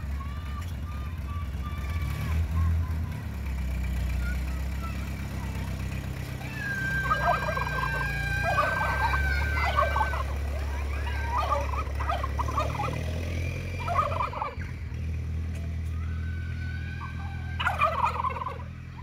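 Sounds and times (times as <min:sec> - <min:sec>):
tractor engine running: 0:00.0 - 0:19.0
turkeys gobbling: 0:06.4 - 0:14.8, 0:16.6 - 0:19.0.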